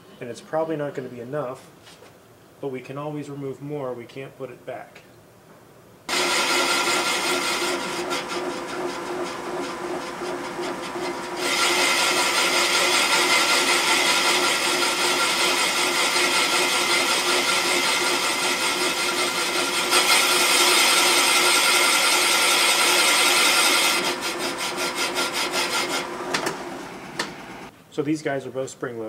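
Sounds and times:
boring cutter grinding metal: 6.1 - 27.4.

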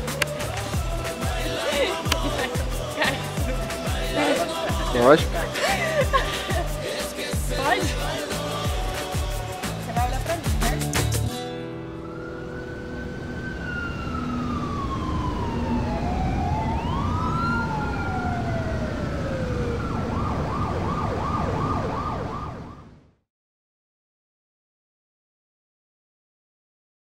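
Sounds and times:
siren wailing and yelping: 12.0 - 23.0.

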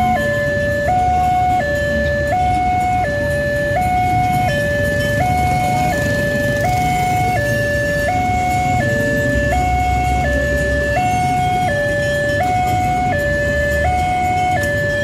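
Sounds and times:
low road traffic: 0.0 - 15.0
two-tone level crossing alarm: 0.0 - 15.0.

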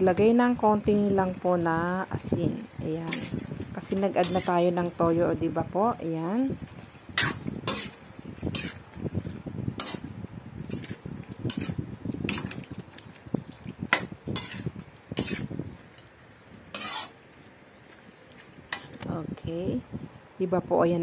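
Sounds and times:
meat being turned in wok: 0.1 - 19.2
spatula scraping and clanking on wok: 3.0 - 5.0, 6.7 - 12.8, 13.8 - 15.6, 16.7 - 17.2, 18.7 - 19.0.

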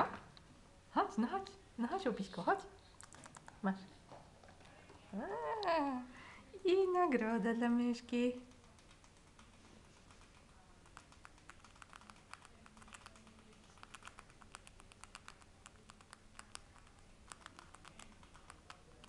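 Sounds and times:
rat gnawing a hard treat: 8.5 - 19.0.

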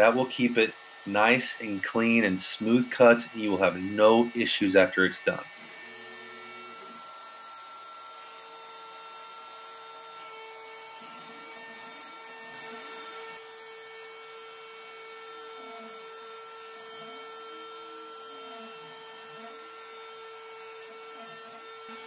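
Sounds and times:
hiss of wood cutting: 0.0 - 7.1, 11.0 - 15.0, 17.4 - 22.0
motor tones sliding up and down: 0.0 - 22.0
router spindle whine: 0.0 - 22.0.

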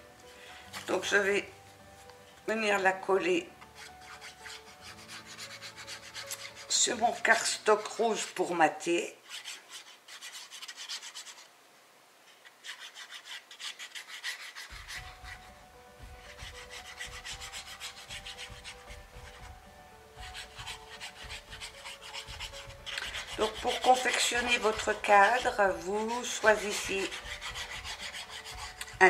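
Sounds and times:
cardstock scraping in hands: 3.7 - 8.6, 9.2 - 11.5, 12.3 - 15.5, 16.2 - 19.5, 20.2 - 29.0.

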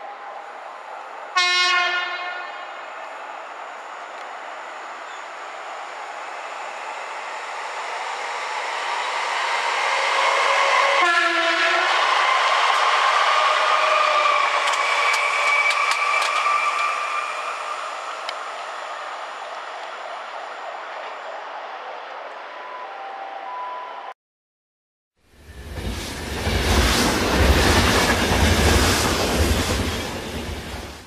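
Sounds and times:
train horn blast: 1.4 - 2.7, 10.9 - 11.9
wheels clicking over rail joints: 14.6 - 16.9
train passing rumble: 25.3 - 31.0.

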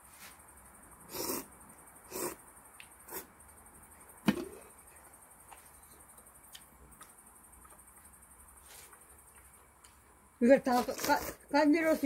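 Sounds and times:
person slurping noodles: 1.1 - 1.5, 2.1 - 2.4.

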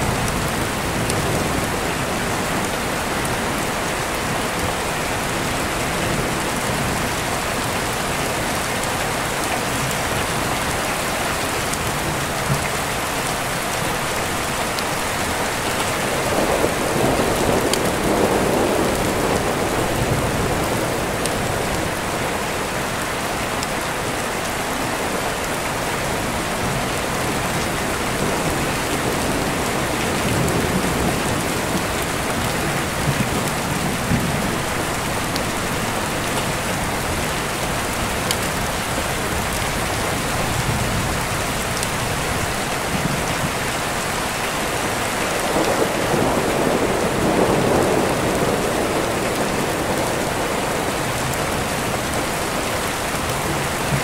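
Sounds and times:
steady rain: 0.0 - 54.0
thunder rumble: 45.4 - 52.3.

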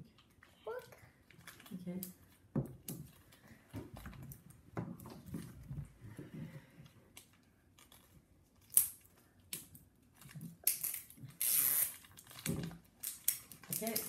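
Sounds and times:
plastic wrapper crinkling: 10.1 - 14.0.

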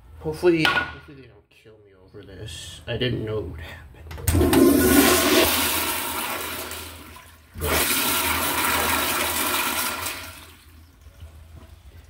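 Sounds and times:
toilet flushing: 4.3 - 12.0.

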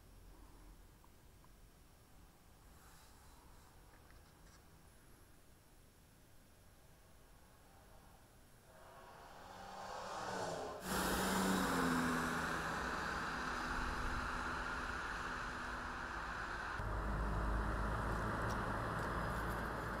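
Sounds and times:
road and tyre noise: 7.1 - 20.0
vehicle passing: 8.7 - 20.0.

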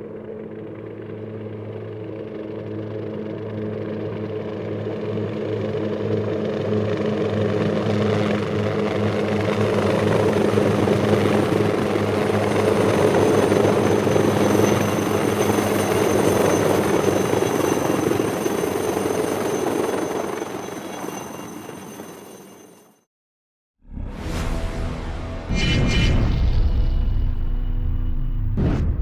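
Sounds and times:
helicopter engine rush: 0.0 - 23.0
helicopter rotor beat: 0.0 - 23.0
high turbine whine: 10.3 - 22.7, 24.0 - 28.9.

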